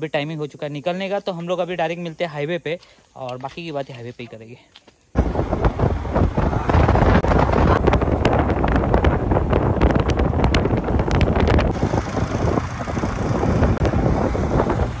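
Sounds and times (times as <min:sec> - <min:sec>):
motorcycle engine and road rumble: 0:05.2 - 0:15.0
wind buffeting microphone: 0:05.2 - 0:15.0.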